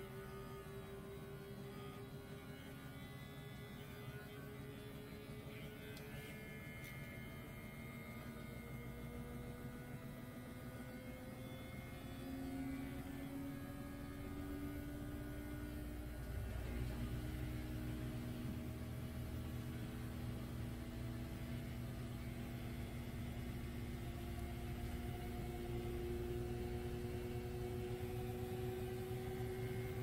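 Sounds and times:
electric clipper motor hum: 10.1 - 30.0.

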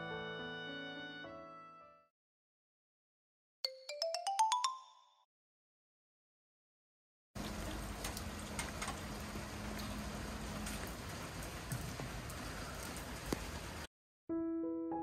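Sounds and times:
rain on wet street: 7.4 - 13.9.

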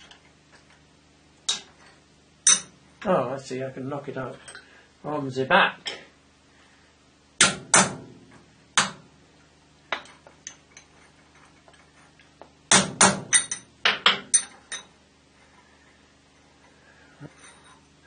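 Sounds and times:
hammer tapping metal punch: 2.5 - 2.7, 8.8 - 9.0, 12.7 - 14.9.

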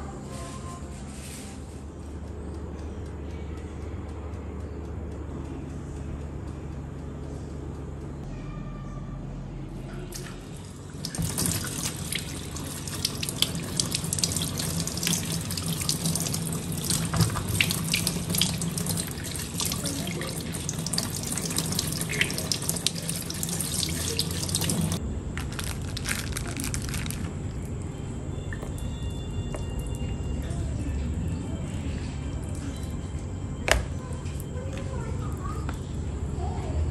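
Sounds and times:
tap running into sink: 11.0 - 25.0.

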